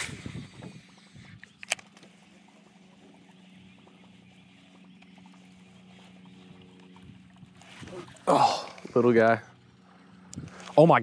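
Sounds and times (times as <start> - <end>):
fishing reel click: 0.0 - 2.1.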